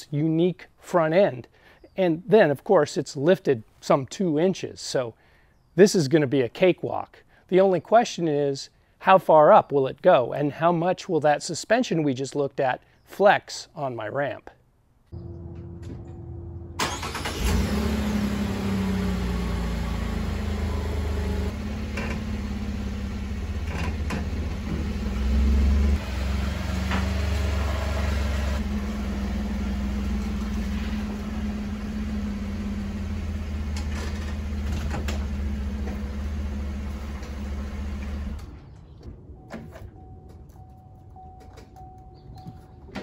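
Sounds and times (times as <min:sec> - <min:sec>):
truck engine running at low revs: 0:15.2 - 0:39.4.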